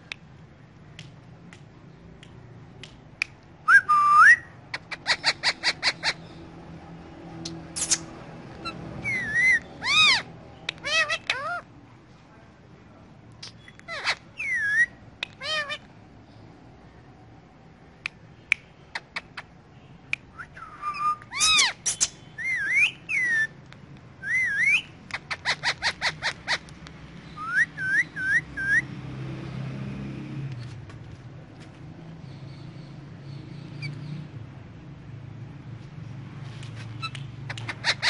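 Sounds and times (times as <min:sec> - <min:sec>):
parakeet clicks: 0:00.9 - 0:03.5, 0:10.6 - 0:11.4, 0:15.2 - 0:15.4, 0:25.0 - 0:27.3, 0:37.0 - 0:38.0
parakeet whistles and squawks: 0:03.7 - 0:06.4, 0:07.5 - 0:11.7, 0:13.4 - 0:15.9, 0:20.3 - 0:23.6, 0:24.2 - 0:29.0, 0:36.9 - 0:38.0
short bird chirps: 0:07.8 - 0:08.1.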